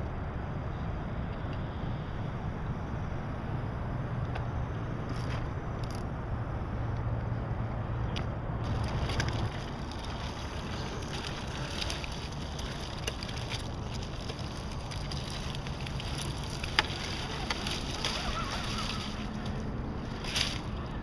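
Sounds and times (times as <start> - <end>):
toy cars clicking over rocks: 5.1 - 6.1, 8.6 - 21.0.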